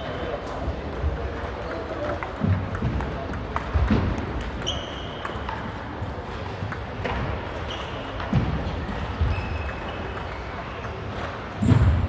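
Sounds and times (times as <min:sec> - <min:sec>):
shoe squeaks on wooden floor: 0:04.6 - 0:05.4.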